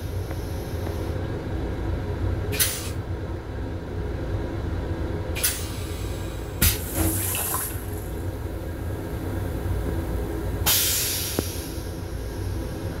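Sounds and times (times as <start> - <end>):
low train rumble: 0.0 - 13.0
toilet flushing water hiss: 5.4 - 8.2, 10.6 - 11.9.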